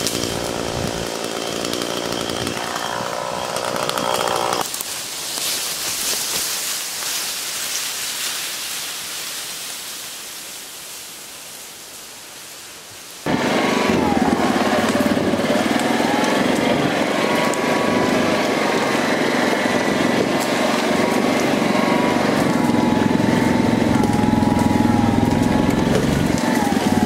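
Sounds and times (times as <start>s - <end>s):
atv engine running: 0.0s - 1.1s, 13.3s - 27.0s.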